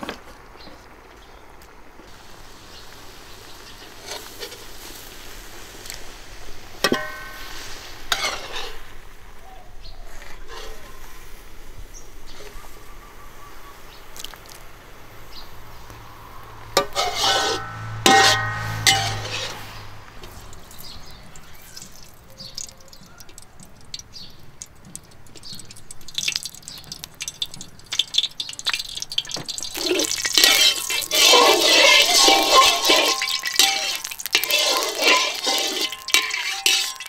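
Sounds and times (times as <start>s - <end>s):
spatula scraping a steel wok: 3.9s - 5.0s, 6.8s - 9.1s, 10.0s - 11.4s, 16.7s - 22.7s, 29.5s - 37.0s
water dripping and splashing: 14.1s - 14.7s, 17.6s - 37.0s.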